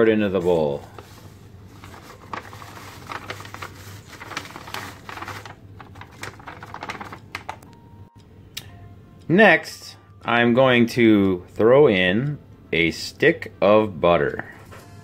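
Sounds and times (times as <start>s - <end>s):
paper pouch crinkling: 0.0s - 7.8s
dry mix pouring into bowl: 0.6s - 7.3s.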